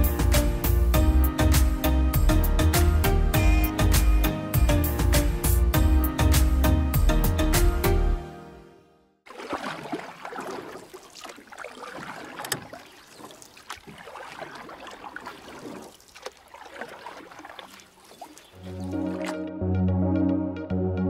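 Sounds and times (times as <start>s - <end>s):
water splashing and sloshing: 9.2s - 19.5s.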